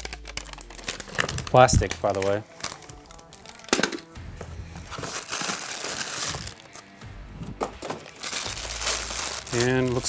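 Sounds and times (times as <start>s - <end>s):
paper bag rustling: 0.0s - 3.9s, 4.8s - 6.8s, 7.8s - 10.0s
plastic bag crinkling: 0.0s - 4.0s, 4.9s - 6.8s, 7.9s - 10.0s.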